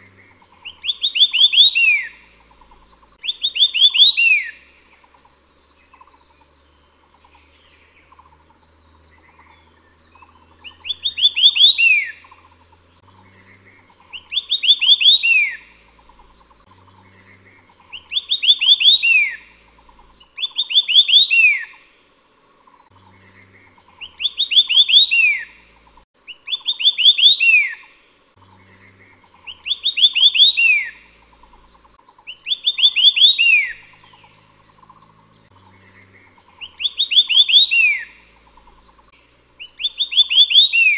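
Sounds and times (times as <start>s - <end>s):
faint pulsing buzz: 0.0s - 1.2s, 1.9s - 3.6s, 4.5s - 18.5s, 19.2s - 20.7s, 21.7s - 24.6s, 27.8s - 30.0s, 30.9s - 32.8s, 33.7s - 37.2s, 38.0s - 40.0s
bird whistling song: 0.0s - 8.2s, 9.1s - 21.8s, 23.1s - 40.9s.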